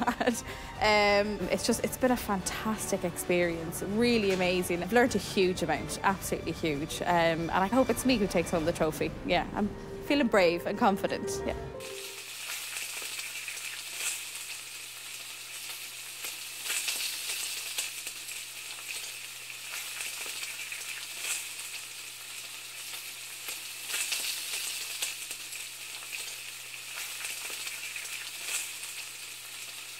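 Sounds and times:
food sizzling in hot fat: 11.8 - 29.9.

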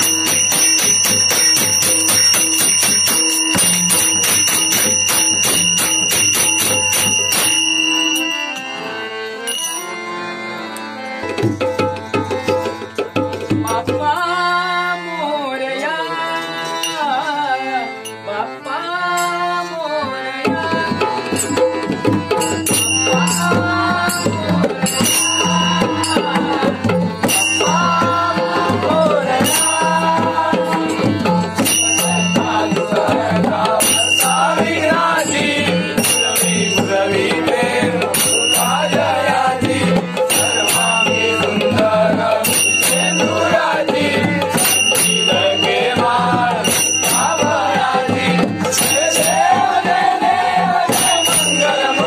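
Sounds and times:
barrel drum rhythm: 0.0 - 8.4, 11.2 - 14.2, 20.4 - 52.0
hand cymbals clashing: 0.0 - 10.0, 24.9 - 26.5, 27.3 - 28.0, 31.6 - 32.9, 35.7 - 36.9, 38.1 - 39.0, 40.2 - 41.7, 42.4 - 43.5, 44.6 - 45.9, 46.6 - 47.8, 50.9 - 52.0
harmonium: 0.0 - 52.0
person singing devotional melody: 0.0 - 52.0.

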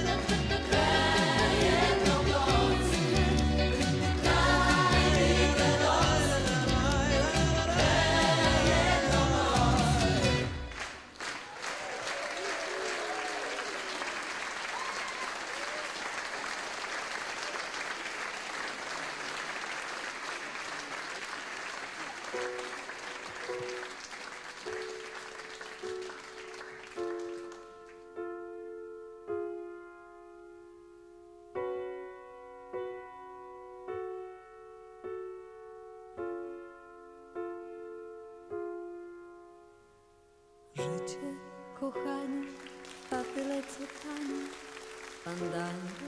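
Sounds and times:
audience applauding: 0.4 - 28.2, 42.4 - 46.0
grand piano chords: 22.3 - 46.0.

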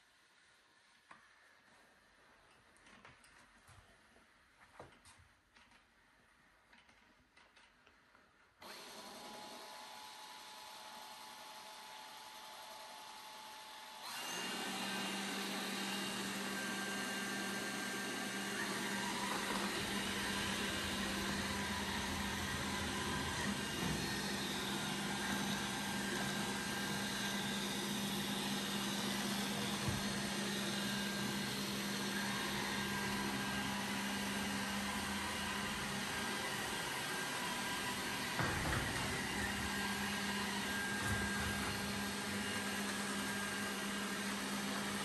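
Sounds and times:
robot vacuum cleaner whirring: 8.6 - 45.0.

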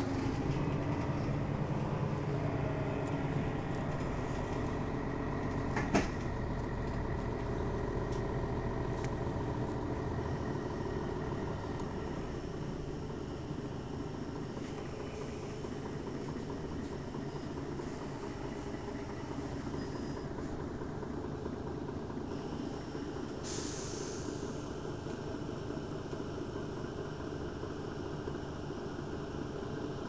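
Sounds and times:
bus diesel engine idling: 0.0 - 30.0
compressed air hiss: 23.4 - 24.6.

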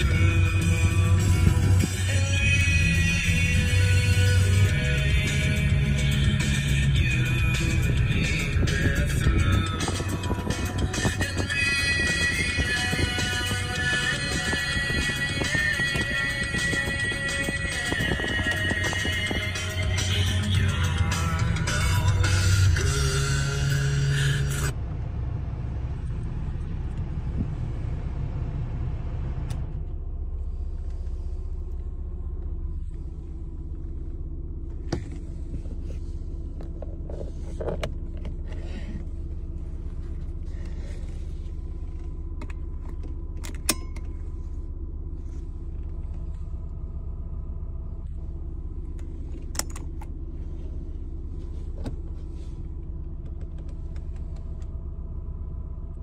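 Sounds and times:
car engine idling: 0.0 - 56.0
clicks of interior controls: 41.9 - 44.2, 48.8 - 50.2, 51.7 - 54.8.

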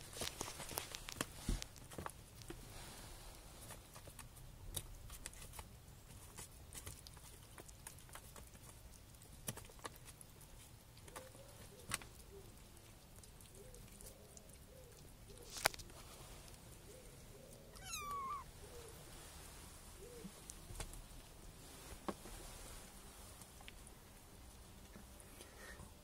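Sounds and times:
faint handling clicks and rustles: 0.0 - 17.9.

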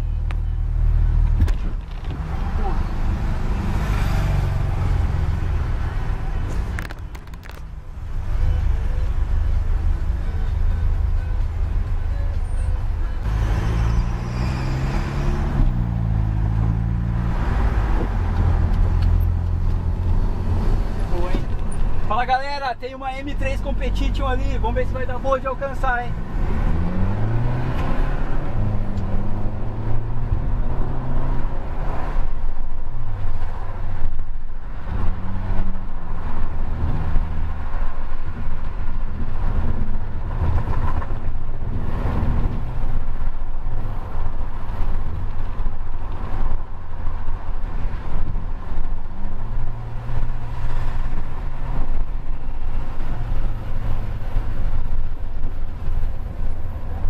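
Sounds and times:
road rumble: 0.0 - 57.0.

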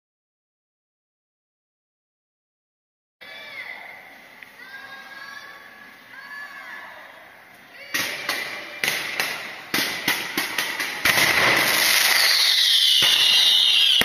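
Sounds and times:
firework bangs: 7.9 - 14.0
hiss of rising fireworks: 8.0 - 14.0
descending firework whistle: 10.8 - 14.0.

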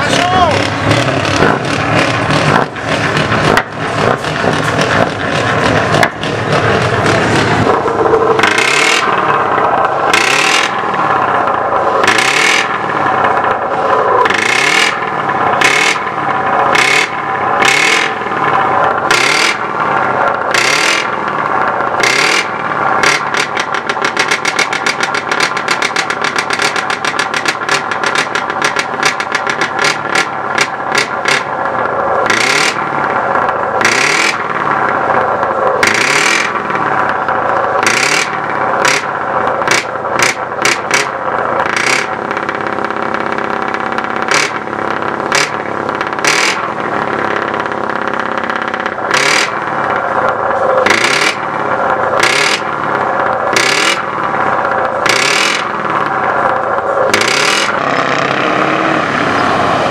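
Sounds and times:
diesel engine revving: 0.0 - 59.9.

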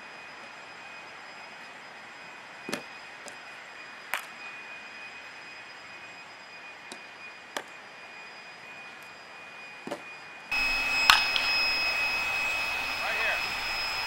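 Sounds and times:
faint high whine: 0.0 - 14.0.

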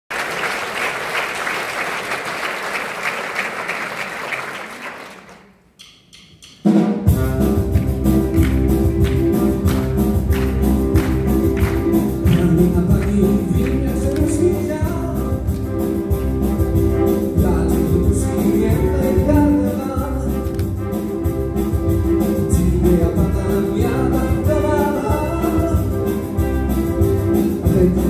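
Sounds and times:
audience applauding: 0.1 - 5.6, 7.7 - 14.8
orchestra playing loudly: 6.6 - 28.0.

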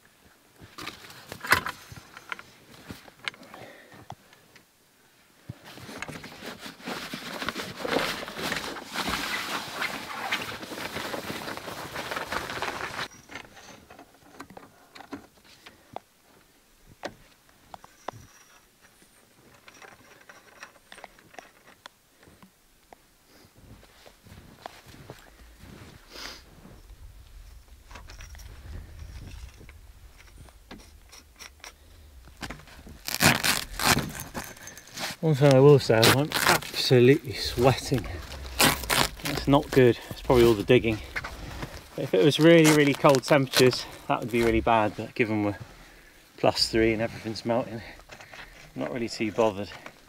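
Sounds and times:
canvas rustling and scraping: 5.5 - 14.3, 23.4 - 50.0
footsteps crunching in snow: 23.3 - 45.8.

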